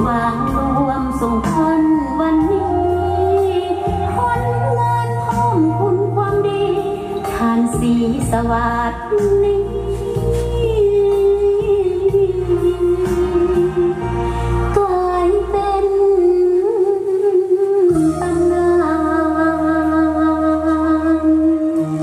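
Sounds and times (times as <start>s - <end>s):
backing music with bass line: 0.0s - 22.0s
woman singing into microphone: 0.0s - 22.0s.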